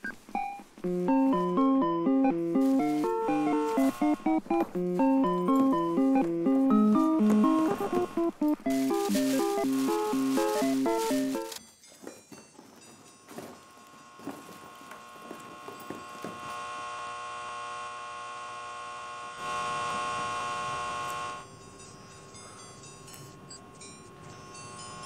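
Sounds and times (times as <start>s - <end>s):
electrical hum: 0.0s - 11.5s, 13.6s - 21.6s.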